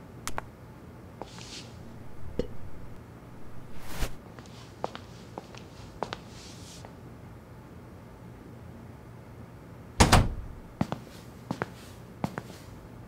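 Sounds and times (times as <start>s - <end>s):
soft rustles: 1.2s - 1.8s, 3.5s - 6.9s.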